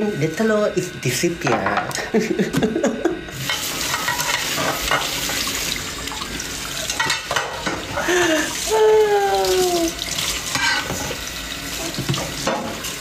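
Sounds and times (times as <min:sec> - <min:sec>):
voice: 0:00.0 - 0:02.4, 0:08.2 - 0:10.0
kitchen tap running: 0:00.0 - 0:13.0.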